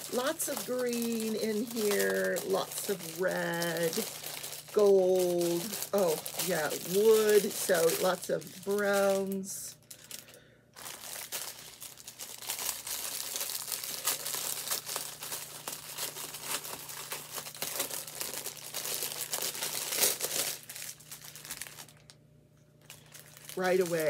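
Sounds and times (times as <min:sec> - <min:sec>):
plastic bags crinkling: 0:00.0 - 0:24.0.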